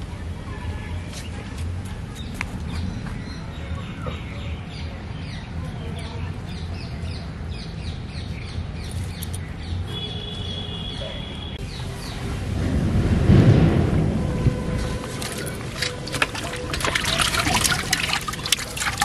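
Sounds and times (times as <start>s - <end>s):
birds chirping: 2.1s - 12.5s
steady low rumble: 11.6s - 18.6s.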